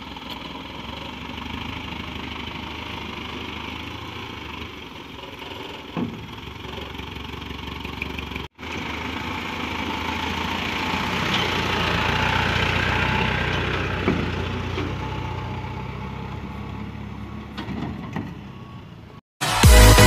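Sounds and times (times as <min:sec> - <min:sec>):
diesel truck engine humming: 0:00.0 - 0:20.0
electronic dance music: 0:19.4 - 0:20.0.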